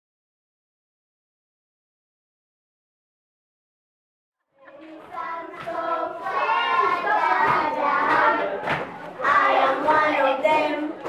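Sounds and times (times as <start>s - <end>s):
children singing together: 4.6s - 11.0s.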